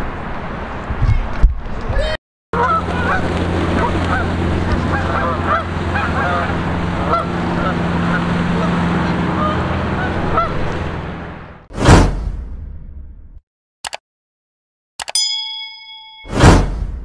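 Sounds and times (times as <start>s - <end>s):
geese honking: 2.6s - 10.8s.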